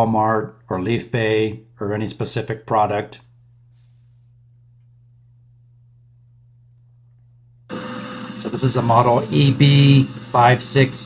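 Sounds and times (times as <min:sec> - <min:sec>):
faint low hum: 0:00.0 - 0:07.7.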